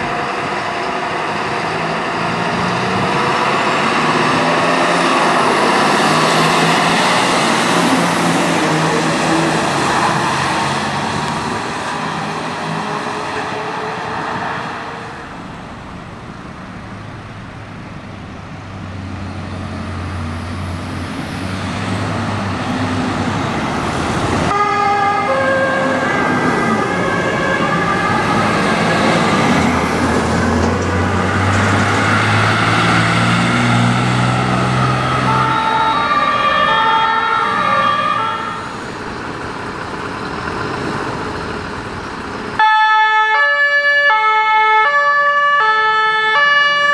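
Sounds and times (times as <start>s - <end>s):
two-tone fire engine siren: 0.0s - 11.0s, 24.5s - 38.8s, 42.6s - 46.9s
heavy truck engine running: 38.6s - 42.6s.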